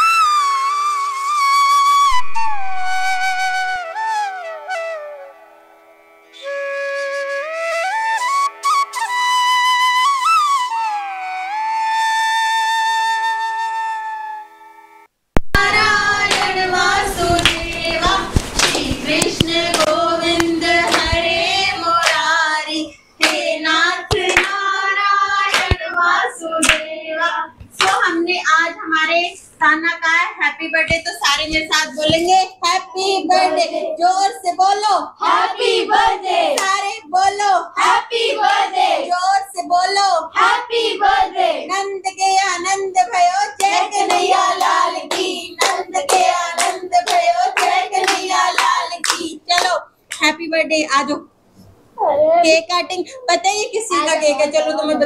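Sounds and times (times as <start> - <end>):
hands clapping in time: 15.4 - 16.6, 17.3 - 21.2, 22.0 - 22.3, 23.2 - 23.5, 24.1 - 24.6, 25.5 - 25.9, 26.6 - 26.9, 27.7 - 28.0, 43.6 - 50.2
group singing: 15.6 - 27.6, 33.0 - 34.0, 35.2 - 36.8, 37.8 - 39.2, 40.3 - 41.7, 43.5 - 49.4.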